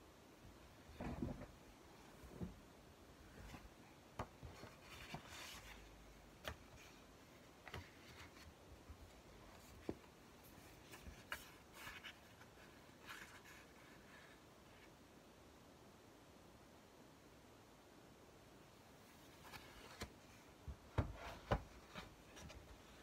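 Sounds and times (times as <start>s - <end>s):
pages rustling: 3.3s - 14.4s, 19.1s - 23.0s.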